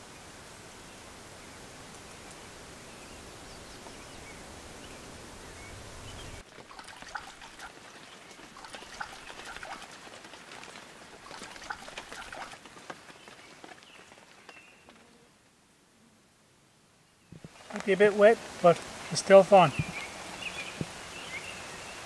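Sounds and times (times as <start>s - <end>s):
bird splashing in water: 6.4s - 14.7s
steady hiss: 17.4s - 22.0s.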